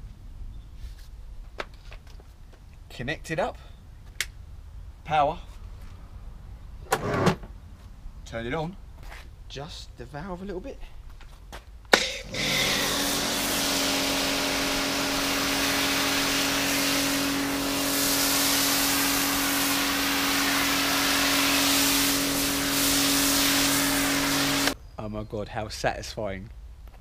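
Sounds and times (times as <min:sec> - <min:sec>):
hiss of water spray: 0:12.0 - 0:24.8
pressure washer motor humming: 0:12.0 - 0:24.8.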